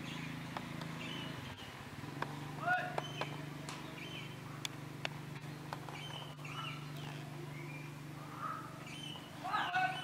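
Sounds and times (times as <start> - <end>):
high bird chirps: 3.0 - 4.4, 5.5 - 10.0.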